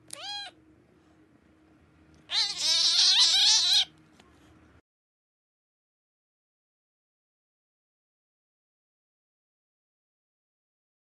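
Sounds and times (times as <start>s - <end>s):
cat meowing: 0.1s - 0.6s, 2.3s - 3.9s.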